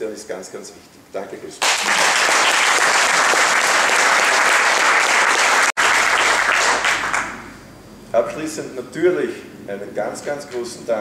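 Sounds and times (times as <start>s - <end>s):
audience applauding: 1.6s - 7.4s.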